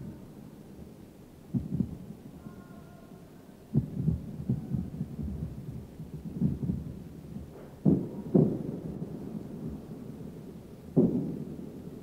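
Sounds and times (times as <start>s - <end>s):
distant anti-aircraft gunfire booms: 3.7s - 11.9s.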